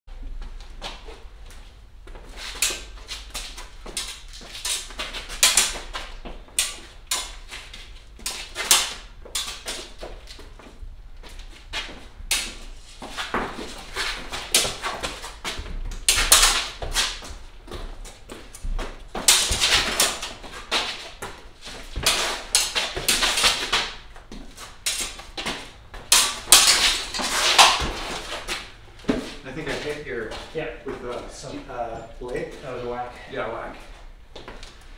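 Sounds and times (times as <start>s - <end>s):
shoes scuffing on concrete: 16.6s - 32.9s.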